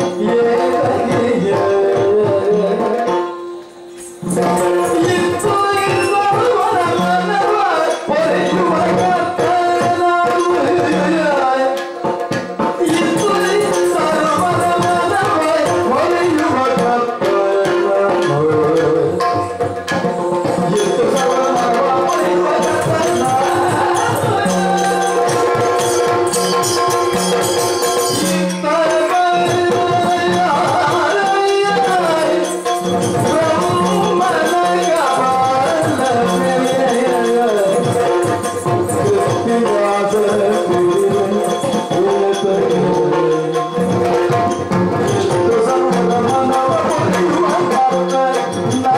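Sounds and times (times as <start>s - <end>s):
drumming: 0.0s - 48.9s
ankle bells jingling: 19.1s - 48.9s.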